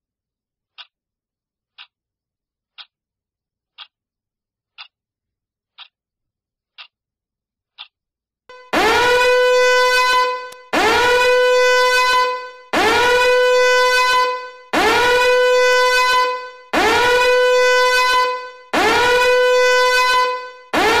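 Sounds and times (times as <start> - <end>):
fire alarm horn blasts: 8.5 - 21.0.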